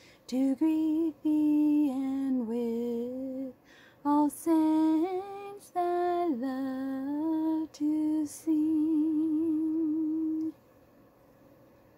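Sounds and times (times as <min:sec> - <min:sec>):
woman breathing: 0:00.0 - 0:00.3, 0:03.6 - 0:04.1
woman singing unaccompanied: 0:00.3 - 0:10.6.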